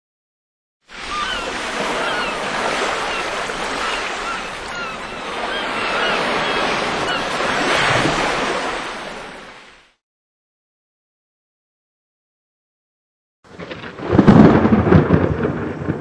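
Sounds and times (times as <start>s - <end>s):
ocean waves rushing: 0.9s - 10.0s.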